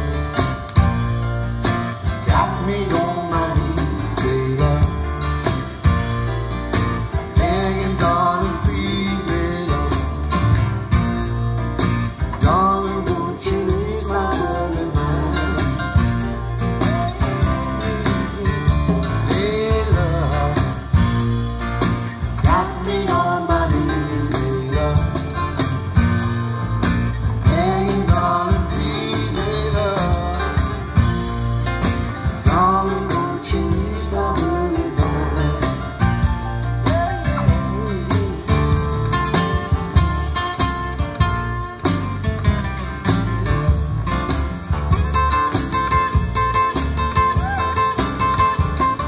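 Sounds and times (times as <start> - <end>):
song through loudspeakers: 2.0 - 6.2, 7.0 - 10.7, 12.2 - 21.2, 22.2 - 40.7.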